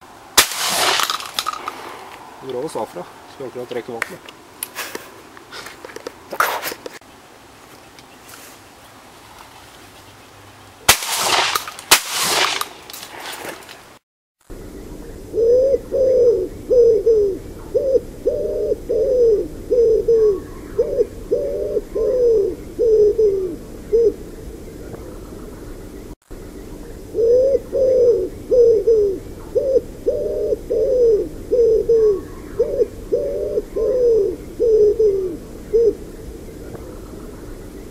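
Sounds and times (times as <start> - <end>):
shotgun shots: 0.4 - 1.7, 10.9 - 12.8
wood pigeon cooing: 14.6 - 37.9.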